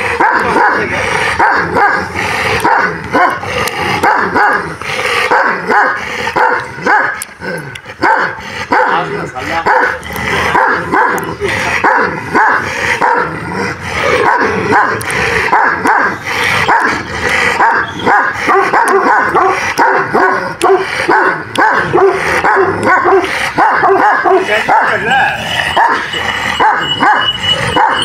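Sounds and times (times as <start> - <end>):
dogs barking: 0.0 - 28.0
dog yips: 23.6 - 28.0.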